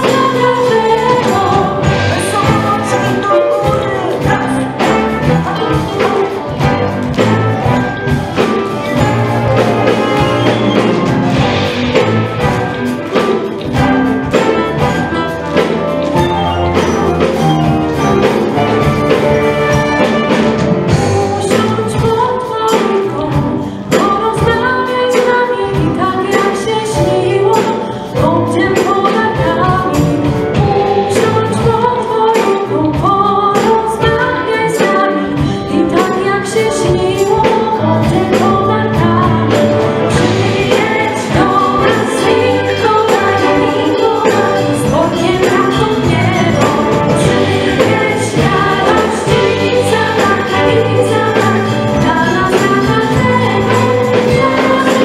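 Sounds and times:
woman singing into a microphone: 0.0s - 6.8s, 20.9s - 55.0s
orchestra with strings: 0.0s - 21.9s
steady percussion beat: 0.0s - 55.0s.

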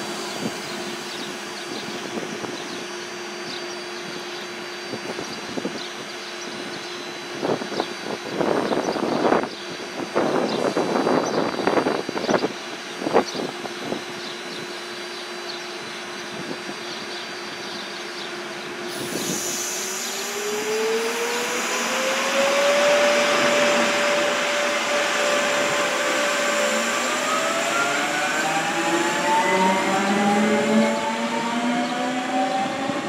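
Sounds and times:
electric train motor whine: 0.0s - 33.0s
wheel and air hiss: 18.9s - 20.8s.

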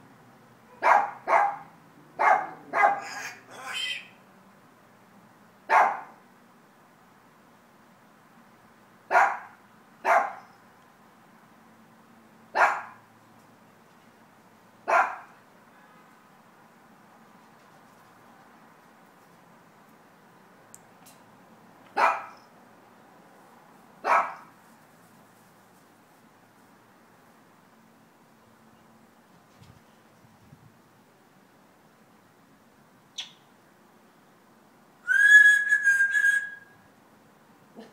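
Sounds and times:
dog barking: 0.7s - 3.2s, 5.7s - 6.2s, 9.1s - 10.5s, 12.6s - 13.0s, 14.9s - 15.3s, 22.0s - 22.4s, 24.0s - 24.5s
parrot chirp: 33.2s - 33.4s, 35.1s - 36.6s
parrot long whistle: 35.0s - 36.8s.

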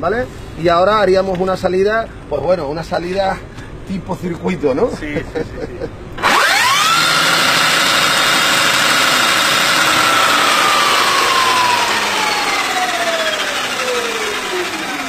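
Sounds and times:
electric motorcycle motor whining: 6.2s - 15.0s.

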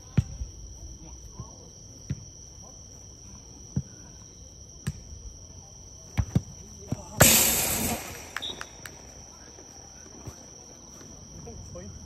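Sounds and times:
high insect trill: 0.0s - 12.0s
ball kicked and bouncing: 6.1s - 7.4s
loud burst of noise: 7.2s - 8.8s.

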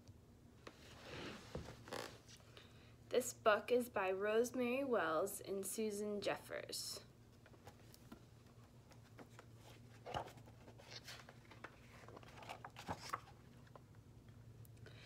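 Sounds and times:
book pages turning: 7.4s - 13.8s.

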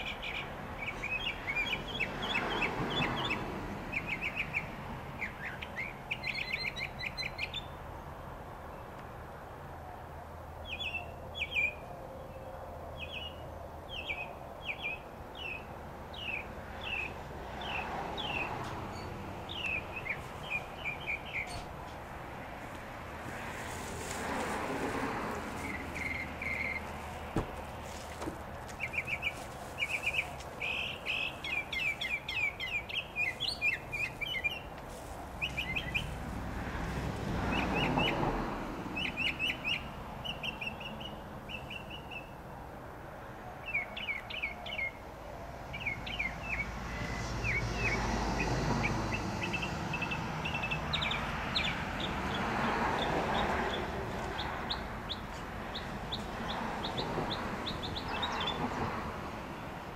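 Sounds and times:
mockingbird singing: 13.0s - 21.7s, 25.6s - 27.0s, 28.7s - 34.7s, 35.4s - 36.2s.

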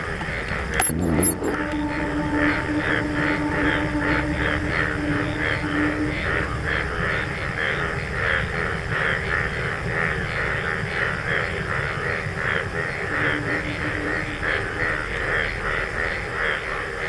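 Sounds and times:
high pulsing chorus: 0.0s - 9.7s, 12.2s - 16.8s
low rumble: 0.0s - 16.5s.

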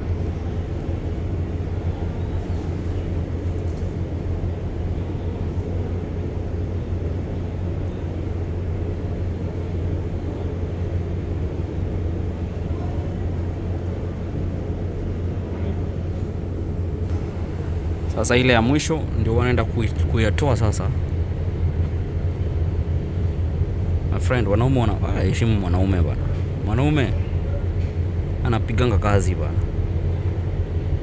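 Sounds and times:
steady low rumble aboard ship: 0.0s - 31.0s.

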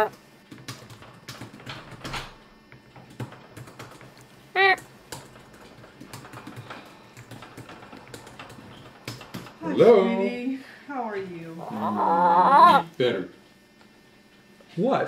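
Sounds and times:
laptop keyboard typing: 0.0s - 9.6s.

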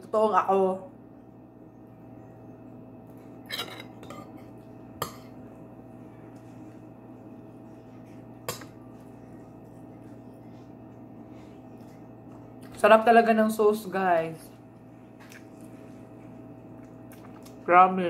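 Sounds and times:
metal spoon clinking on plate: 3.5s - 4.4s.

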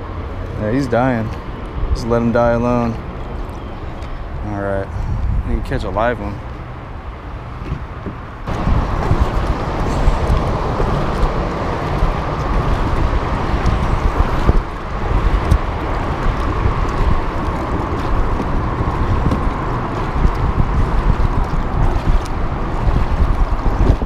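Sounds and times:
wind buffeting microphone: 0.0s - 24.0s
water rushing along kayak hull: 7.3s - 24.0s.

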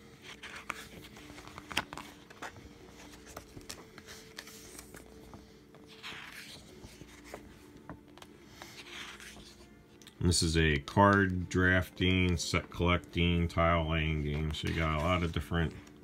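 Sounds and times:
paper pages rustling: 0.0s - 9.8s, 10.7s - 16.0s
page swish: 5.9s - 7.4s.

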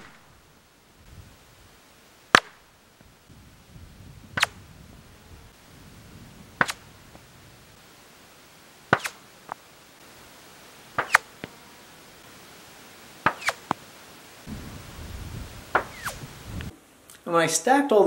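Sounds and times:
distant rifle shots: 0.0s - 0.4s, 2.3s - 2.6s, 11.0s - 11.3s
sharp bullet crack: 0.0s - 0.4s, 2.3s - 2.7s, 4.3s - 4.6s, 6.6s - 6.9s, 8.9s - 9.2s, 11.0s - 11.3s, 13.2s - 13.8s, 15.7s - 16.2s.

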